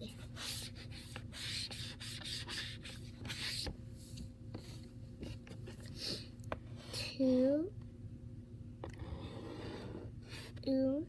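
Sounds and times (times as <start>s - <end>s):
eraser rubbing chalkboard: 0.2s - 3.7s.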